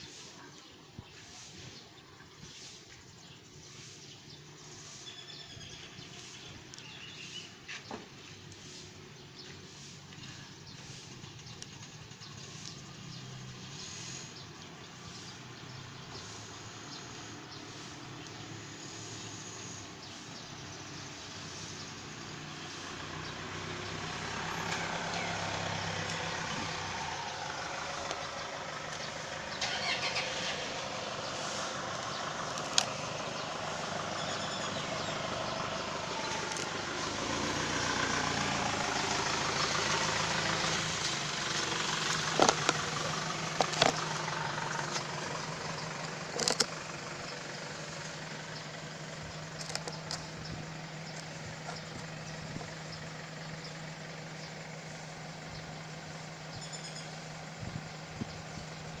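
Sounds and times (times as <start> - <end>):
vehicle engine passing: 9.4 - 56.2.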